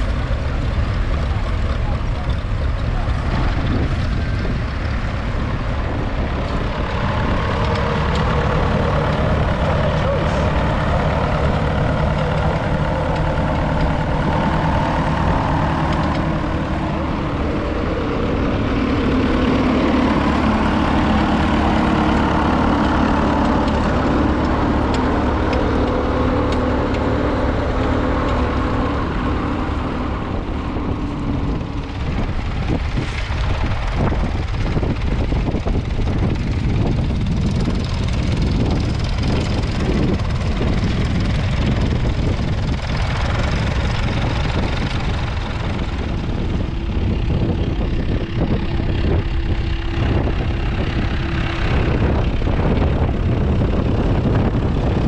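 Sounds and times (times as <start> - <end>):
faint voices: 0.0 - 15.5
tractor engine running: 0.0 - 55.0.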